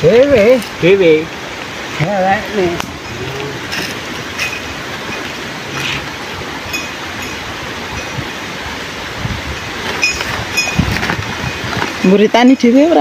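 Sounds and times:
steady outdoor hiss: 0.0 - 13.0
rustle of cardboard and plastic: 9.8 - 12.2.

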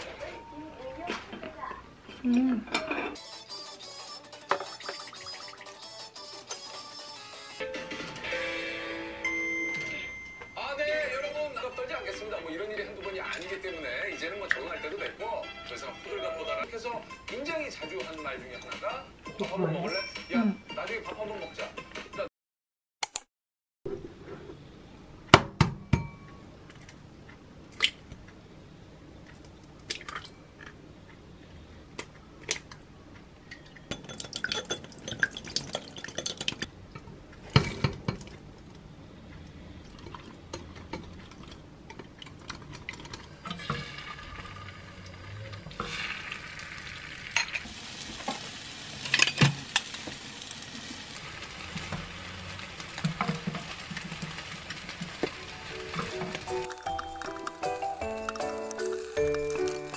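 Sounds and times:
metal stirrer clinking glass bowl: 33.9 - 36.6
egg sizzling in frying pan: 43.3 - 59.9
utensils tapping a pan: 53.0 - 59.9.

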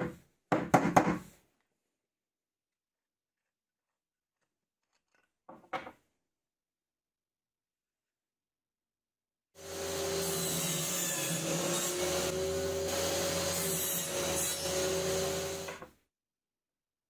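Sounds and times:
table saw cutting wood: 9.6 - 15.9.

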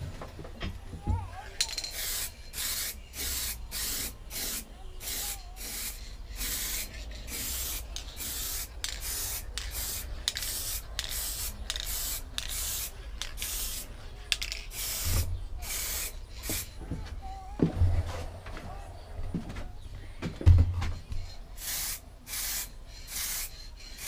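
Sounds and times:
aerosol spray can hissing: 1.8 - 16.8, 21.2 - 24.0.

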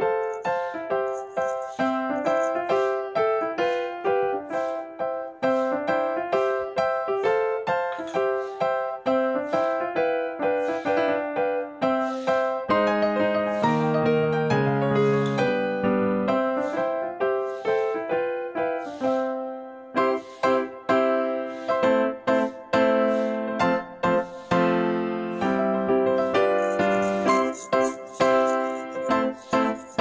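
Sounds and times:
bright piano tune: 0.0 - 30.0.

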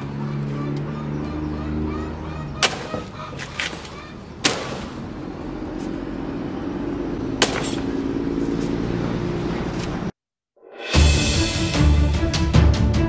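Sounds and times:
cleaver chopping plant stalks: 2.6 - 5.9, 7.3 - 8.8.

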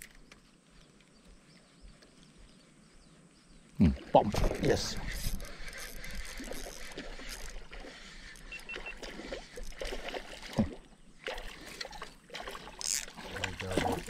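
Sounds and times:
water lapping on boat: 3.8 - 14.0
spinning reel cranking: 5.0 - 7.6, 12.8 - 13.1.

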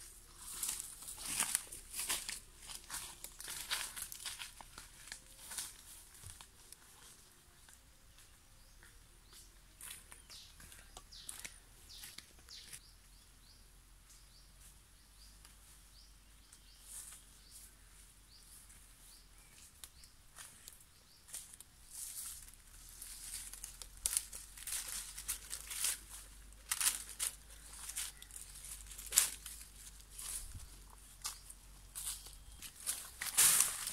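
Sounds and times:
footsteps crunching through dry leaves: 0.0 - 7.3, 8.8 - 12.8, 16.7 - 33.9
high bird chirps: 10.2 - 13.6.

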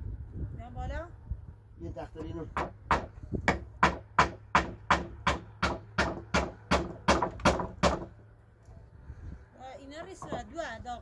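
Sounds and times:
hammer nailing wooden plank: 2.6 - 8.1.

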